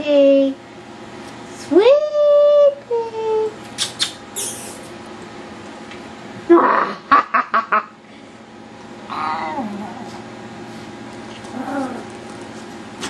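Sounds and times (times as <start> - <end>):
puppy whining: 9.1 - 10.2, 11.3 - 12.2.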